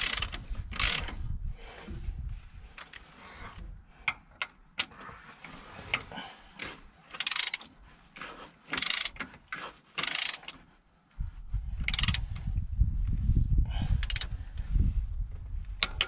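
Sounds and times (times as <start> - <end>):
torque wrench ratchet clicking: 0.0 - 1.2, 7.2 - 7.6, 8.8 - 9.2, 10.0 - 10.6, 11.8 - 12.2, 14.0 - 14.3.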